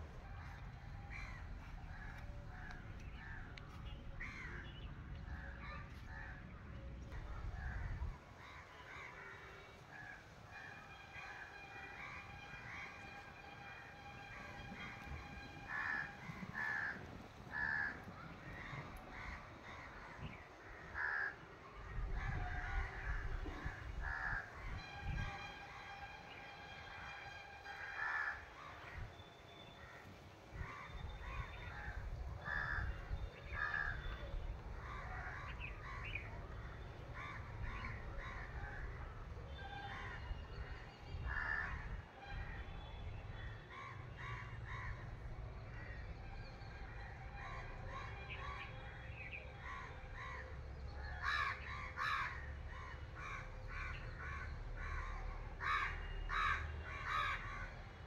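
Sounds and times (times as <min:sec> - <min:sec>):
crows cawing: 0:00.4 - 0:03.4, 0:15.6 - 0:21.5, 0:22.2 - 0:24.7, 0:26.9 - 0:29.0, 0:30.6 - 0:34.1, 0:34.8 - 0:39.0, 0:41.3 - 0:41.9, 0:51.1 - 0:57.8.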